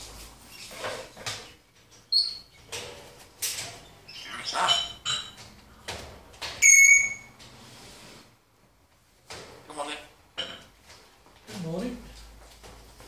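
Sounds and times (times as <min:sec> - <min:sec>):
parrot chattering: 0:04.1 - 0:05.0, 0:09.6 - 0:10.2
parrot whistling: 0:06.6 - 0:07.3.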